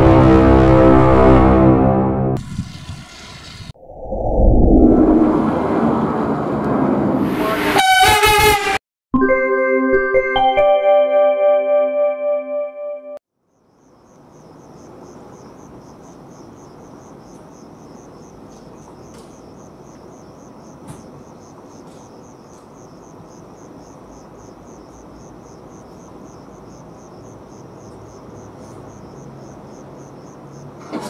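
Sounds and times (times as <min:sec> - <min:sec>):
low rumble: 0:00.0 - 0:07.5
insect chirping: 0:13.3 - 0:30.8.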